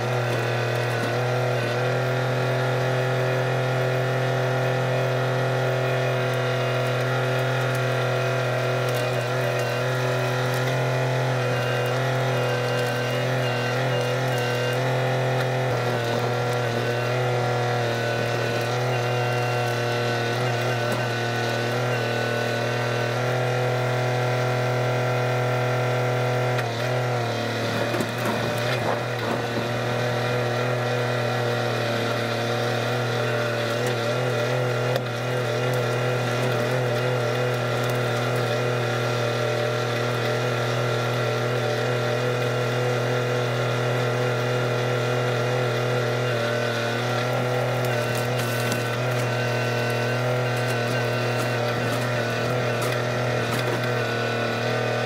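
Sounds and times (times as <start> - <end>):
tractor diesel engine running: 0.0 - 55.0
grapple crackling and knocking brush: 46.3 - 55.0.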